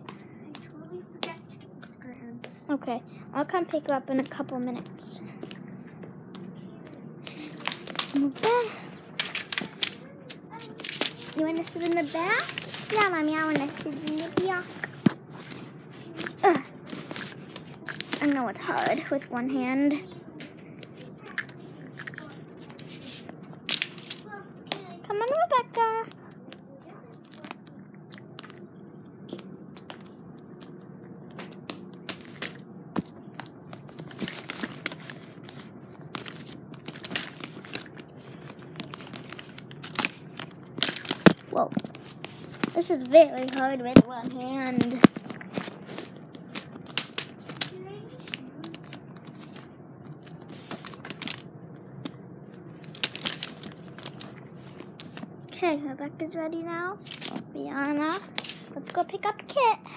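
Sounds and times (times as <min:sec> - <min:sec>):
rustling and crinkling: 0:03.6 - 0:55.7, 0:57.0 - 0:59.7
sharp clicks and crunches: 0:07.2 - 0:19.2, 0:29.3 - 0:55.6, 0:57.0 - 0:59.0.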